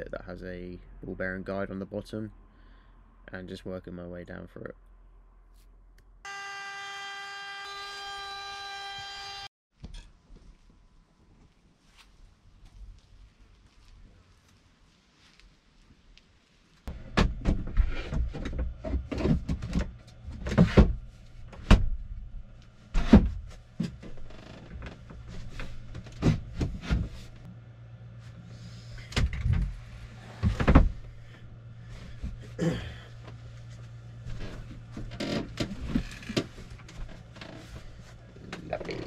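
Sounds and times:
low steady hum: 16.9s - 39.0s.

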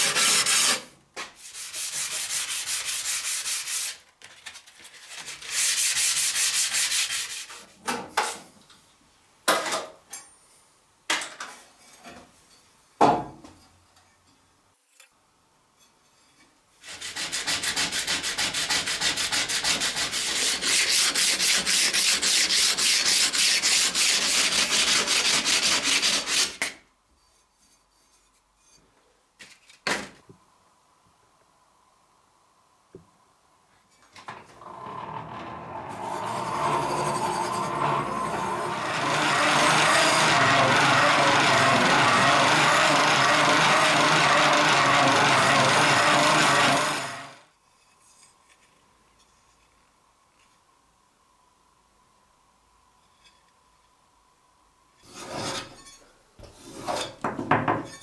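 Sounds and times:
sanding a steel blade: 0.0s - 4.0s, 5.2s - 7.6s, 16.8s - 26.6s, 36.6s - 47.0s.

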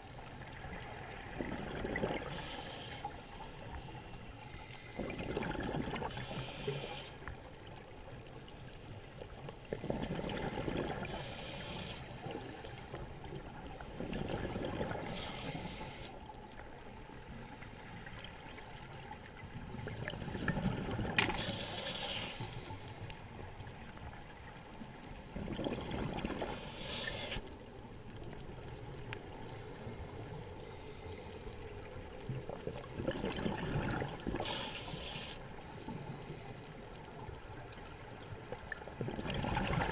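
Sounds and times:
regulator breathing hiss: 2.2s - 5.2s, 6.1s - 7.3s, 11.0s - 14.0s, 15.0s - 16.2s, 21.3s - 23.3s, 26.5s - 27.5s, 34.4s - 36.8s.

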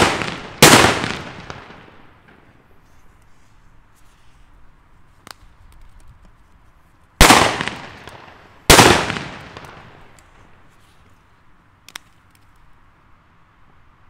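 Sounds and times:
loud firecracker bangs: 0.0s - 2.5s, 7.2s - 10.2s.

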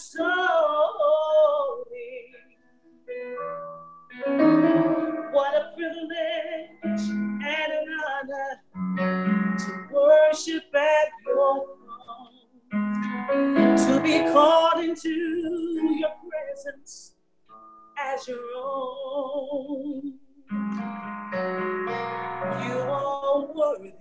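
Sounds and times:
woman singing with vibrato: 0.0s - 2.5s, 4.5s - 8.6s, 9.6s - 12.4s, 13.7s - 17.1s, 18.0s - 20.2s, 22.4s - 24.0s.

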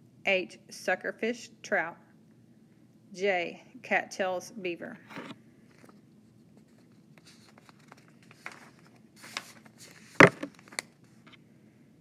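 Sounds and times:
rustling and clicking handling noises: 5.2s - 11.4s.

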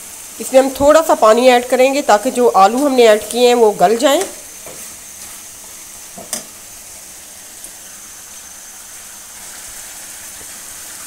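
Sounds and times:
curry sizzling in a pan: 0.0s - 11.0s.

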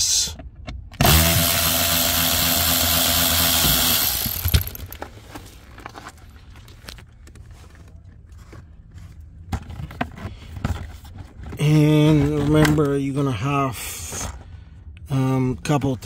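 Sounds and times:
electric ratchet running: 1.0s - 5.0s
ratchet stopping click: 1.0s - 5.0s
handling clatter: 4.2s - 13.1s.

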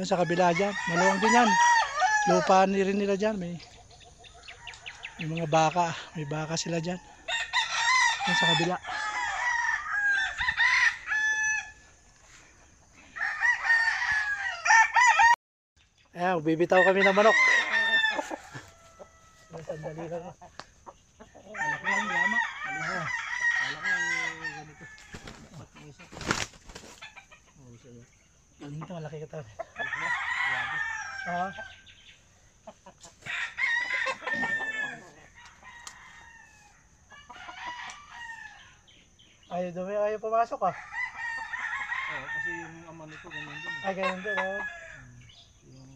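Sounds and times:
roosters crowing: 0.0s - 15.4s, 16.2s - 45.9s.

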